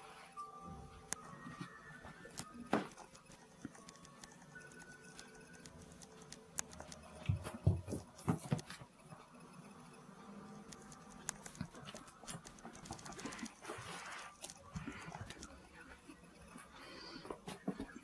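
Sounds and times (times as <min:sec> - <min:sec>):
paw patter and clicks on floor: 0:11.2 - 0:15.5.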